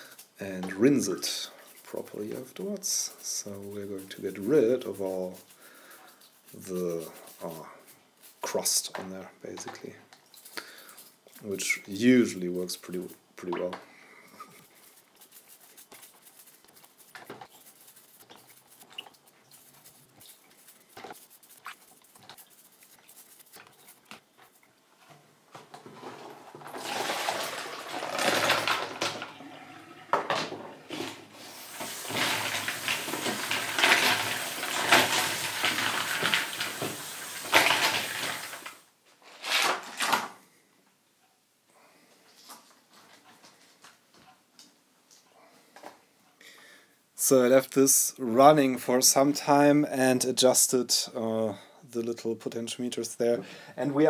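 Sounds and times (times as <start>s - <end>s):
scrubbing plastic knobs in water: 0.0s - 24.8s, 25.8s - 38.8s
tap water running: 26.2s - 38.8s
water poured into steel sink: 26.6s - 30.3s, 31.4s - 38.8s.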